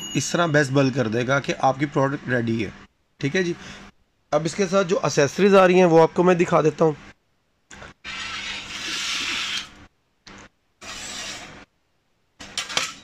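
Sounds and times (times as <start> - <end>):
metal tray scraping on counter: 8.0 - 9.7, 10.8 - 11.6.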